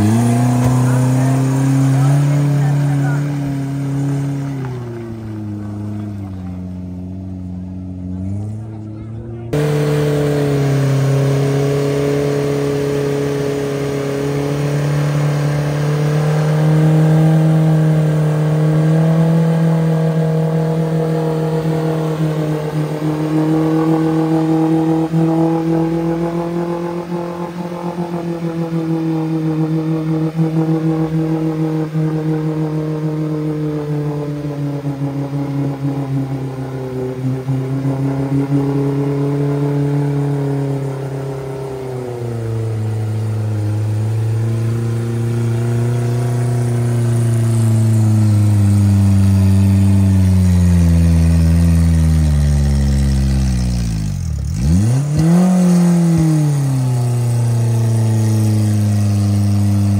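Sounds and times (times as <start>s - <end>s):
engine revving: 0.0s - 59.9s.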